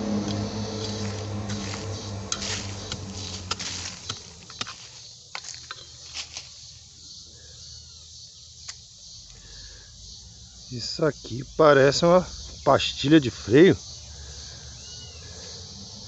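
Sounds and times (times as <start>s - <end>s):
low steady hum: 0.0s - 5.0s
digging tool scraping soil: 2.4s - 5.7s.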